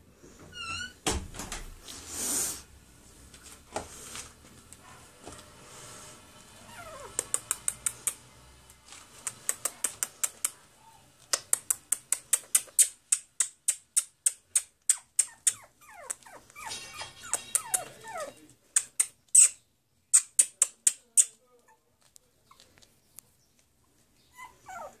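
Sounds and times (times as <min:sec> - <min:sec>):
puppies whimpering: 0:06.6 - 0:07.5, 0:15.2 - 0:18.5, 0:24.3 - 0:25.0
high-pitched squeaks: 0:14.9 - 0:19.6.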